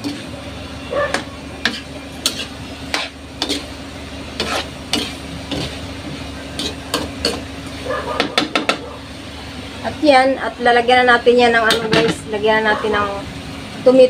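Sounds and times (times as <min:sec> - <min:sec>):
metal spoon scraping frying pan: 0:00.0 - 0:00.4, 0:01.0 - 0:07.5
steady low hum: 0:00.0 - 0:14.0.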